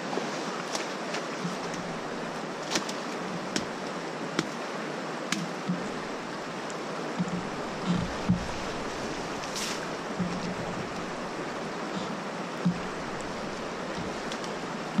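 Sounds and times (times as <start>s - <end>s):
creek water rushing: 0.0s - 15.0s
dull thumps: 7.2s - 15.0s.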